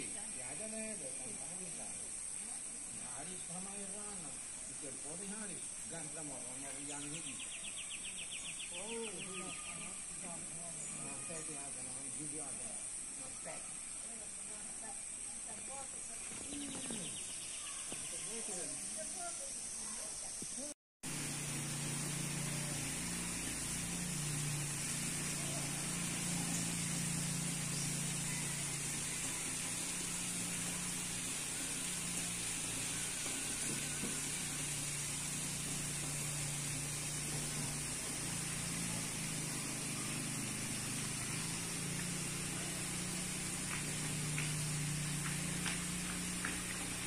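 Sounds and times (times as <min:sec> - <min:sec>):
high hiss: 0:00.0 - 0:47.0
faint high chirps: 0:02.4 - 0:12.5, 0:16.4 - 0:20.7, 0:21.3 - 0:46.4
motor humming: 0:21.0 - 0:47.0.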